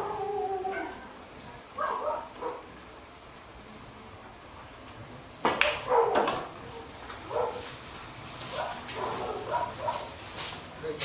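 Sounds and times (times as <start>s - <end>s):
dog barking: 1.8s - 2.7s, 5.9s - 6.3s, 7.3s - 7.7s, 8.5s - 10.1s.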